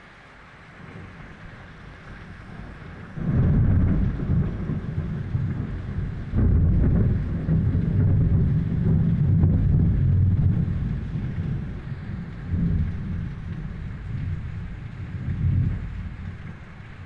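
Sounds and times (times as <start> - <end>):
rain falling: 0.0 - 17.0
deep rumble of thunder: 0.7 - 17.0.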